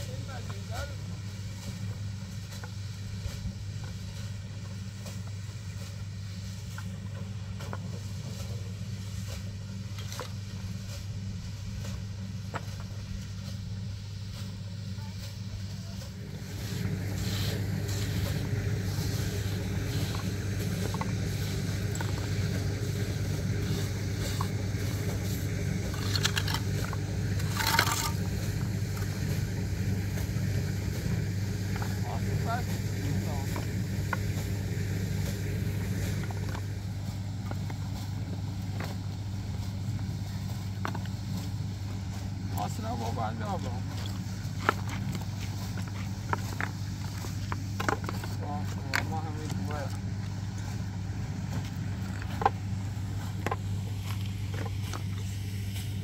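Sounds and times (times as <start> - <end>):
small engine droning: 0.0 - 56.0
concrete blocks scraping and knocking: 25.9 - 28.4.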